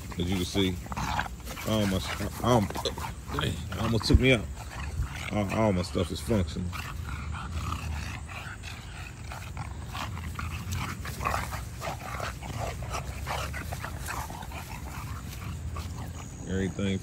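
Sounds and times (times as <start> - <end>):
dogs play-wrestling noises: 0.0 - 17.0.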